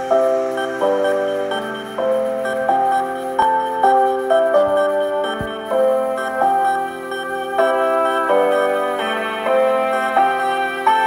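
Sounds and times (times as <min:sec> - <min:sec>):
sustained music chords: 0:00.0 - 0:11.0.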